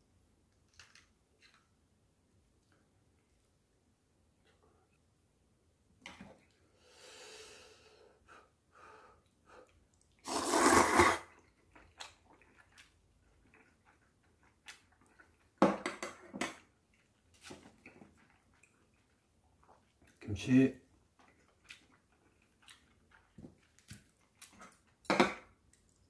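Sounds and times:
soft chewing: 0:00.5 - 0:01.9, 0:09.2 - 0:10.2, 0:11.3 - 0:15.6, 0:16.6 - 0:26.0
person slurping noodles: 0:10.2 - 0:11.4.

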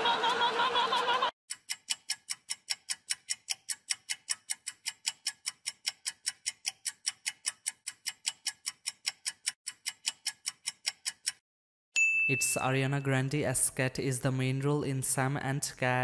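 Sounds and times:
clock ticking: 0:01.0 - 0:11.4.

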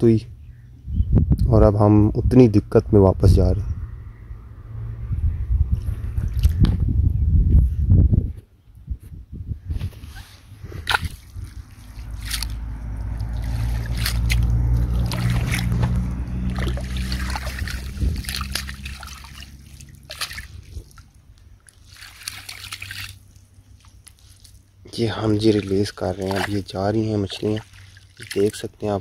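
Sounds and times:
low rumble on microphone: 0:00.0 - 0:21.6
water splashing and sloshing: 0:06.2 - 0:06.6, 0:09.8 - 0:29.0.

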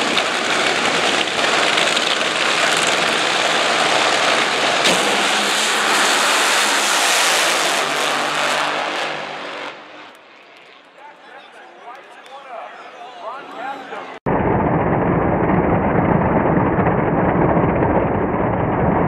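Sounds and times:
drag racing engines at full throttle: 0:00.0 - 0:12.4
sharp engine crack: 0:00.2 - 0:10.9.

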